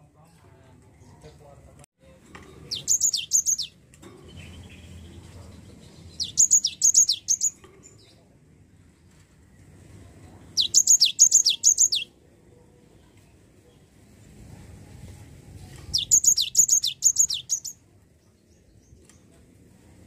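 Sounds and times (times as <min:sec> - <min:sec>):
bird singing whistled phrase: 0:10.6 - 0:12.1, 0:15.9 - 0:17.8.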